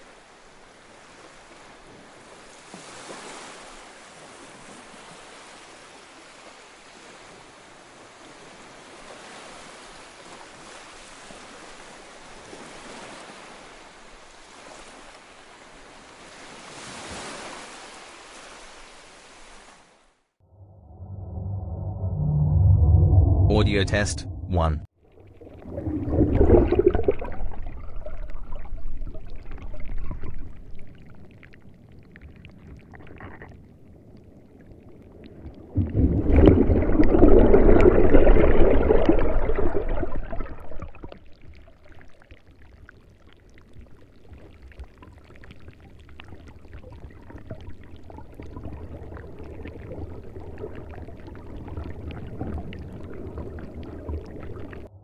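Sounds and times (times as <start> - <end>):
underwater low rumble: 20.5 - 55.0
water gurgling: 25.0 - 34.0, 34.6 - 54.9.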